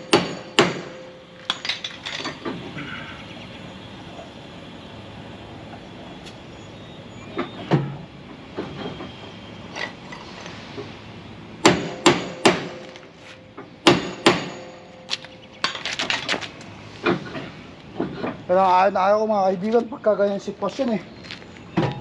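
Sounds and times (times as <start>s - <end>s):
hammer pounding on metal: 0.0s - 1.0s, 11.6s - 12.9s, 13.8s - 14.9s.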